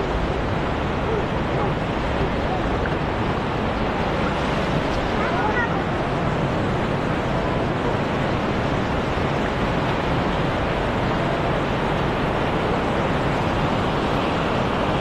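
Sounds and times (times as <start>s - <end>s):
stream rushing over rocks: 0.0s - 15.0s.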